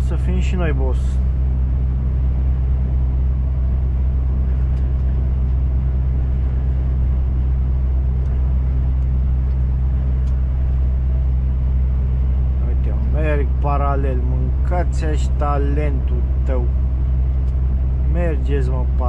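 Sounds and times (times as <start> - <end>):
lorry engine drone: 0.0 - 19.0
road noise: 0.0 - 19.0.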